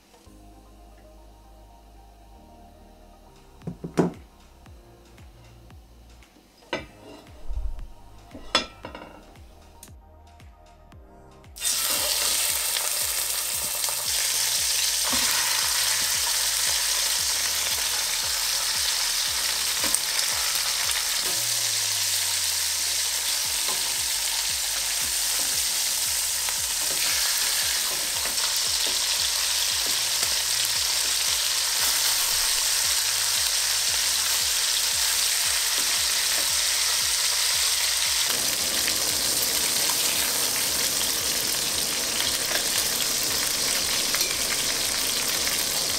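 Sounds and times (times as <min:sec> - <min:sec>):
chicken sizzling in hot oil: 0:11.6 - 0:45.9.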